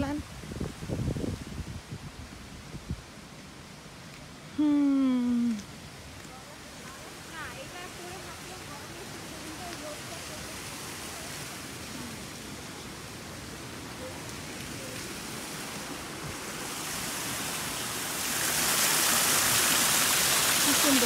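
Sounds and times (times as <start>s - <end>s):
water rushing down a fountain: 5.5s - 21.0s.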